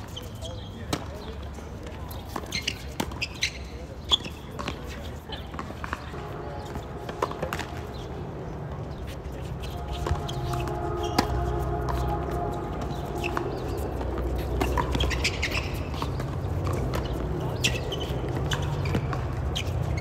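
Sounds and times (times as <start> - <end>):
tennis ball bouncing: 2.1 - 8.2, 9.0 - 20.0
tennis racket hitting ball: 4.6 - 8.1, 9.9 - 12.1, 12.8 - 19.3.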